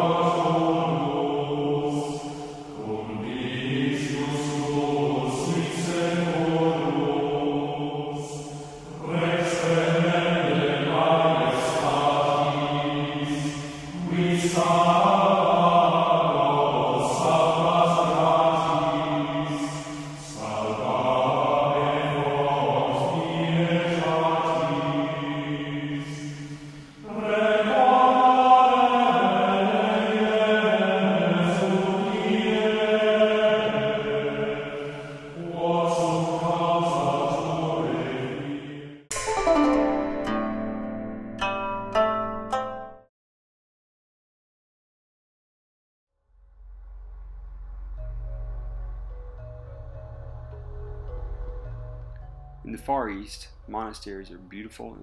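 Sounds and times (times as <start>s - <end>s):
slow vocal chant: 0.0s - 39.1s, 52.6s - 55.0s.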